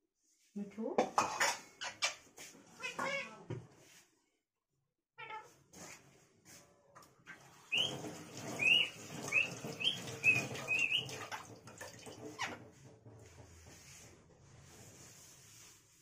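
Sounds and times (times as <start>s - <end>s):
parakeet chirping: 7.7s - 8.0s, 8.6s - 11.2s.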